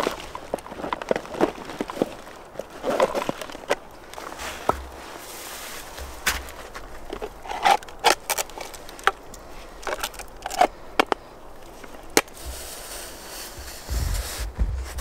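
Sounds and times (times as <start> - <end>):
low rumble: 13.7 - 15.0.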